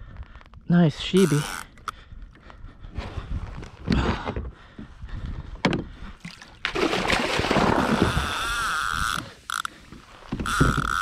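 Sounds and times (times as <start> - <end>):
water splashing and sloshing: 5.6 - 11.0.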